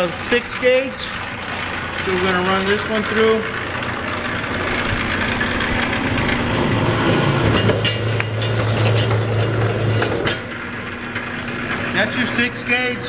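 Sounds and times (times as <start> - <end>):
electric motor humming: 0.0 - 13.0.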